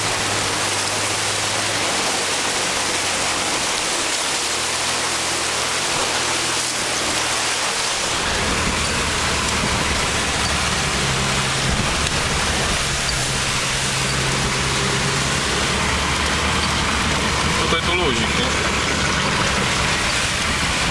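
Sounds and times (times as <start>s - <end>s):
engine droning: 0.0s - 20.9s
water spraying from tyres: 0.0s - 20.9s.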